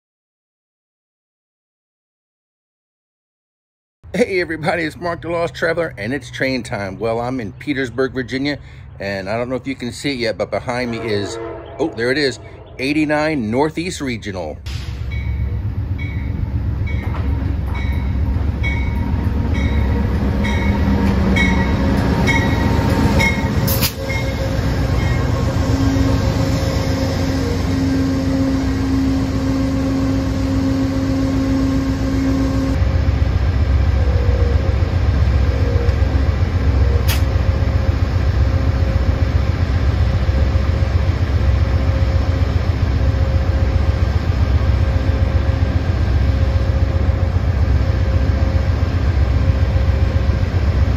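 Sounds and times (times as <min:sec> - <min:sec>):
train rolling past: 0:04.1 - 0:50.9
diesel engine running: 0:14.7 - 0:50.9
train bell ringing: 0:14.9 - 0:32.8
high steady tone: 0:15.0 - 0:39.4.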